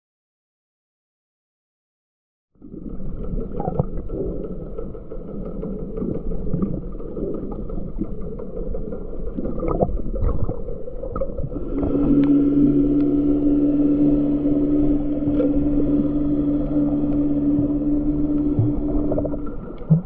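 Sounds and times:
steady low hum: 0:02.6 - 0:20.0
underwater rush of water: 0:02.7 - 0:20.0
small clicks and crackles: 0:02.9 - 0:12.4.

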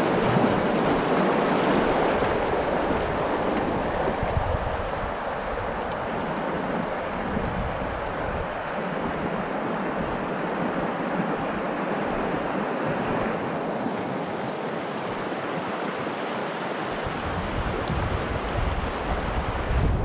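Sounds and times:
wind buffeting microphone: 0:00.0 - 0:16.2, 0:16.9 - 0:20.0
river running over rapids: 0:00.0 - 0:20.0.

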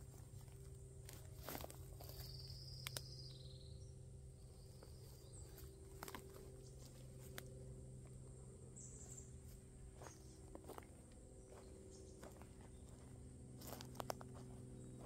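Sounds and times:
footsteps on twigs: 0:00.0 - 0:03.2, 0:04.6 - 0:08.2, 0:09.0 - 0:15.0
faint high chirp: 0:01.5 - 0:07.4.

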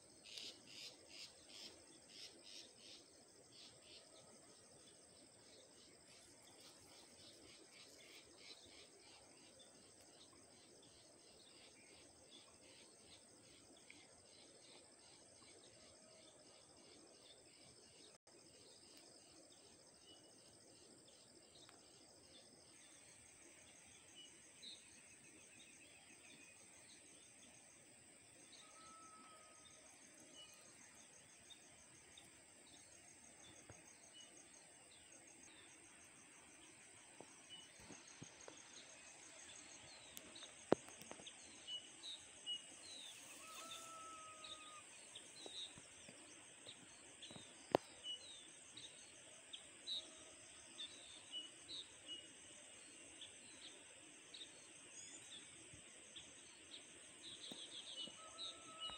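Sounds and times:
high insect trill: 0:22.3 - 0:50.6.

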